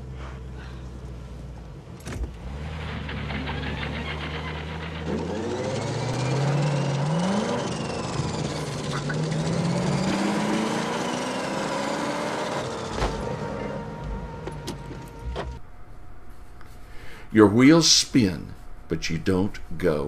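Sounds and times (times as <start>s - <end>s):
car engine revving: 2.1s - 15.6s
wheel spinning in mud: 2.3s - 11.8s.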